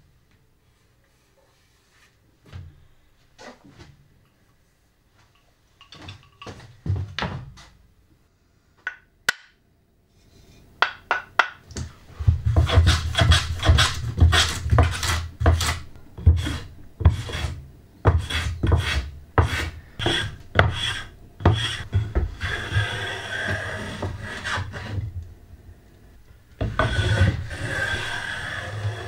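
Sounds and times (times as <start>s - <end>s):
hand plane shaving wood: 12.5s - 25.0s, 26.6s - 29.0s.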